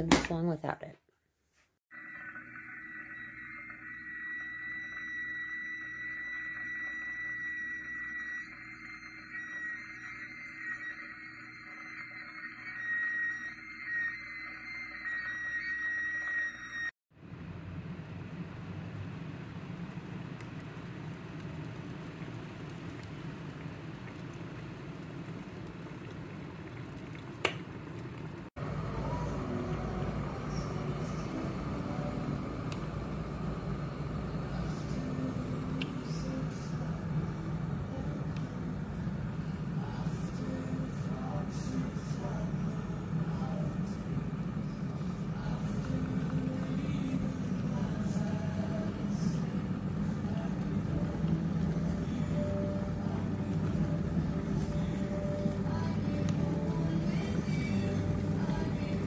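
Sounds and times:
kettle water rumbling and hissing: 17.2s - 59.0s
kettle click: 27.4s - 27.6s.

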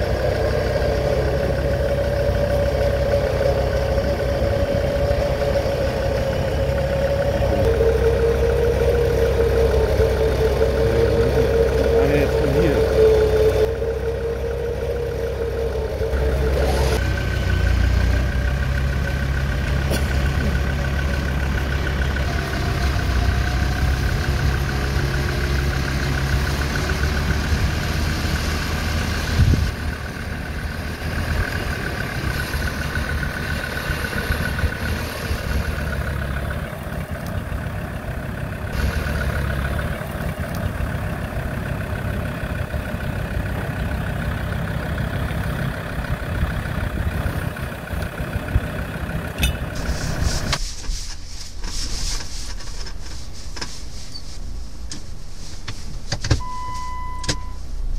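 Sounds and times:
high whine: 0.0s - 17.0s, 49.4s - 57.9s
engine rumbling under load: 0.0s - 57.9s.

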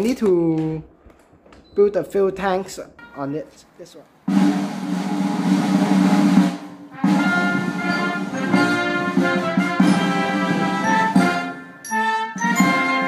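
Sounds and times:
background music with beat: 4.3s - 13.0s.

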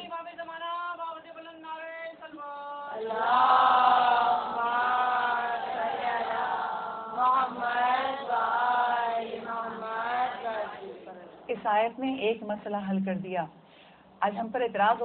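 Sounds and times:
women chanting together: 2.9s - 11.5s.

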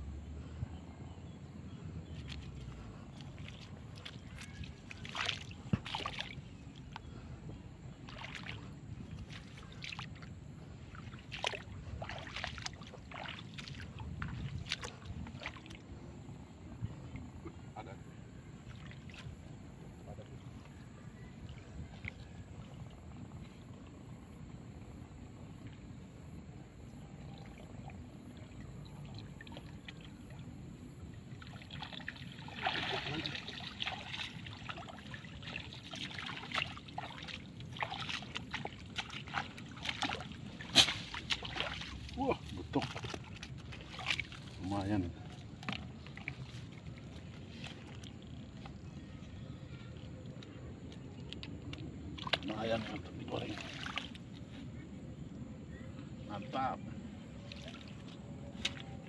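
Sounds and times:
steady low rumble: 0.0s - 18.6s
water splashes and drips: 2.2s - 7.0s, 7.9s - 16.0s, 18.6s - 19.6s, 27.4s - 49.0s, 50.0s - 54.6s, 57.4s - 59.0s
net hauled out of water: 31.4s - 48.8s, 52.1s - 54.3s.

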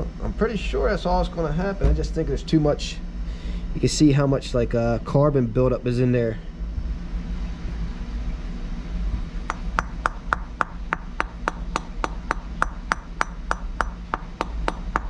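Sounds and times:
hammer tapping on metal: 9.5s - 15.0s.

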